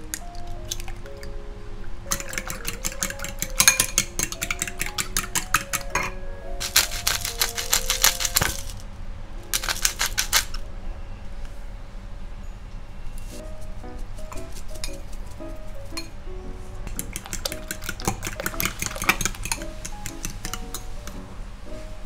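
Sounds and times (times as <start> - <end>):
soft background music: 0.0 - 22.0
fork beating eggs in glass bowl: 2.1 - 8.7, 16.9 - 20.9.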